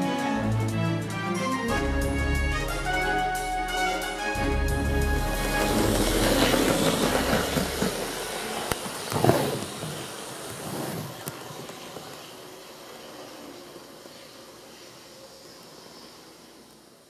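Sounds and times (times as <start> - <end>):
model train wheels clattering: 5.5 - 12.3.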